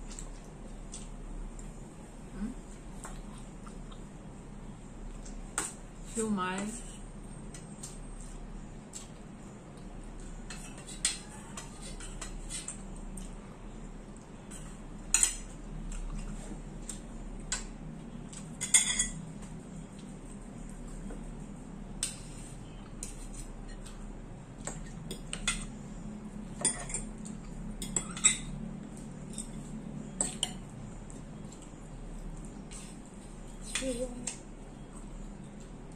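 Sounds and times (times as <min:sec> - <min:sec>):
cutlery clinking on dishes: 0:18.6 - 0:19.2, 0:26.6 - 0:28.6.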